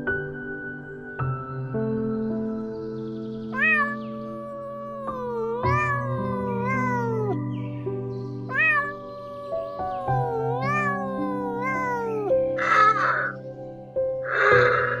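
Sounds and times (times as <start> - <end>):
background music: 0.0 - 15.0
cat meowing: 3.6 - 7.5, 8.5 - 13.4.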